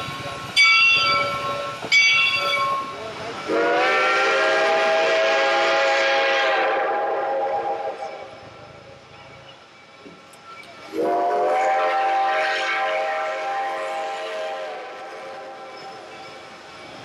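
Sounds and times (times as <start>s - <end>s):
slow train running noise: 0.0s - 17.0s
steam whistle blast: 3.5s - 8.3s, 10.9s - 15.7s.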